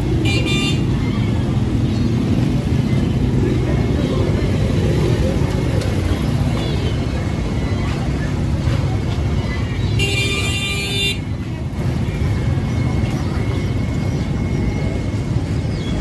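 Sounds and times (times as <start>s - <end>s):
faint voices: 0.0s - 16.0s
low traffic rumble: 0.0s - 16.0s
vehicle horn honking: 10.0s - 11.2s.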